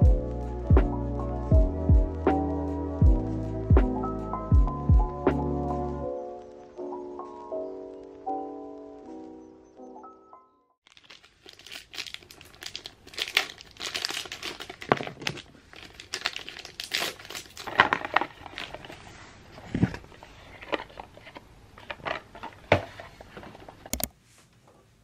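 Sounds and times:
material crinkling and rustling: 10.8s - 24.7s.

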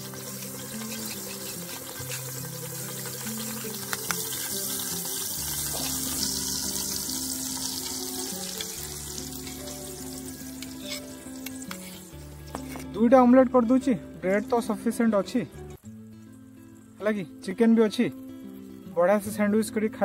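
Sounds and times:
oil hissing in frying pan: 0.0s - 12.4s
egg poured into hot pan: 0.0s - 12.8s
background music: 0.0s - 20.0s.

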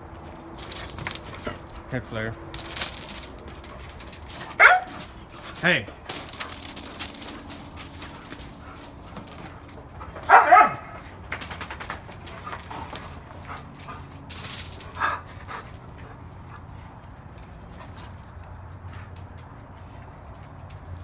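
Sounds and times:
dog barking: 4.5s - 5.0s, 10.3s - 11.0s.

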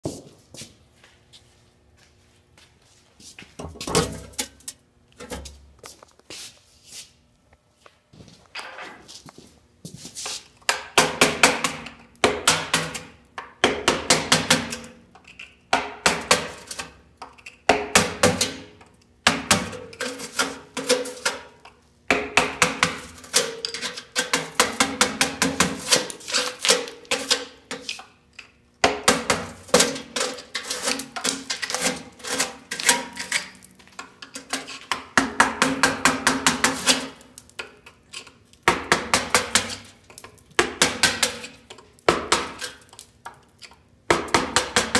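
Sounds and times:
hammer striking chisel: 10.7s - 14.9s, 15.7s - 16.8s, 22.1s - 27.9s, 28.8s - 30.4s, 34.9s - 37.7s, 38.7s - 39.9s, 40.6s - 42.8s, 44.1s - 44.9s.

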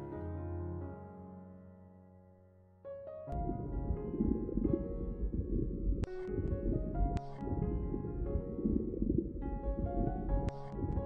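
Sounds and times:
calm keyboard background music: 0.0s - 11.0s
low noisy rumble: 3.4s - 11.0s.

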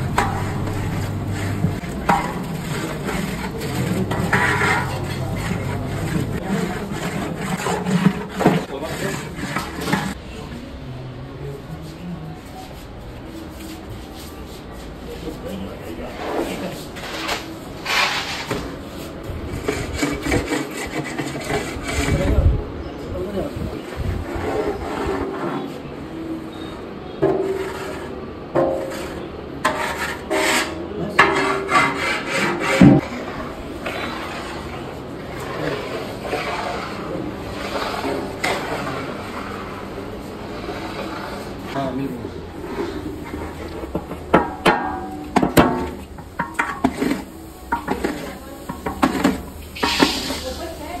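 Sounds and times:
metal utensils clanking on pan: 0.0s - 10.2s, 28.6s - 33.2s, 42.9s - 50.8s
spatula scraping a pan: 0.0s - 10.3s, 13.3s - 22.5s, 23.9s - 51.0s.

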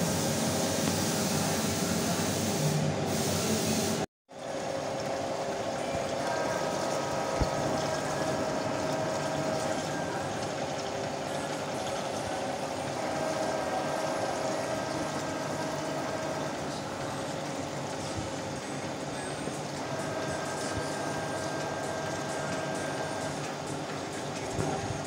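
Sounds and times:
coolant spray hiss: 0.0s - 4.0s.

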